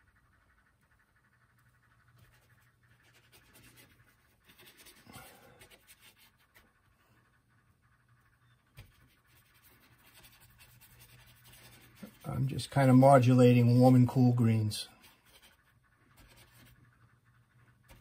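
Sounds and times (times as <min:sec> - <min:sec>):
paintbrush scrubbing on panel: 0:02.1 - 0:06.9, 0:08.7 - 0:14.4, 0:15.0 - 0:17.1.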